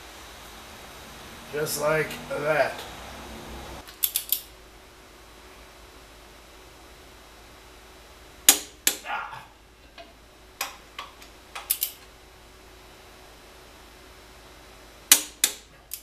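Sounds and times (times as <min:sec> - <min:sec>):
socket wrench metallic clicks: 0:03.9 - 0:04.5, 0:11.6 - 0:12.0.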